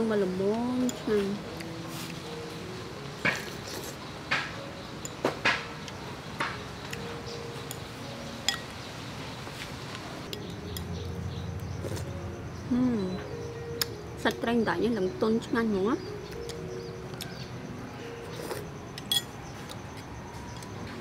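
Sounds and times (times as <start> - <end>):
spoon clinking on ceramic bowl: 19.0 - 19.4.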